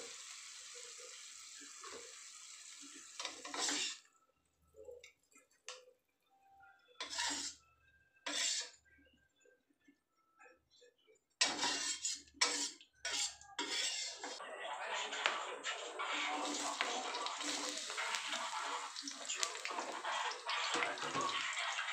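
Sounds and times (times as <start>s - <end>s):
metal spatula scraping a wok: 3.2s - 4.1s, 7.0s - 7.6s, 8.3s - 8.8s, 11.4s - 14.4s, 15.0s - 21.9s.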